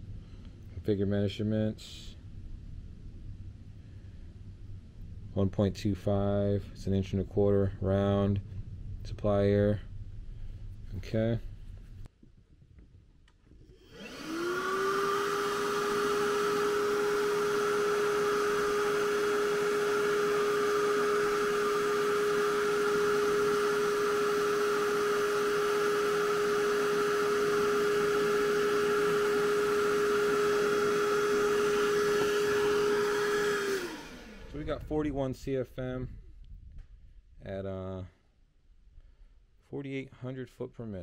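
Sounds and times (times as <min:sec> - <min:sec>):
rush of air from exhaust: 0:01.9 - 0:05.4, 0:09.8 - 0:11.8, 0:13.7 - 0:34.8
vacuum motor whine and hum: 0:13.6 - 0:34.9.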